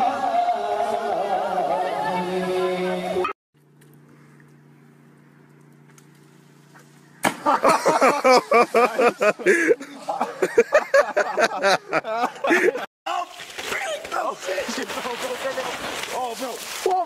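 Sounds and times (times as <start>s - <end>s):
faint low hum: 3.6s - 10.5s
splash into water: 13.1s - 17.0s.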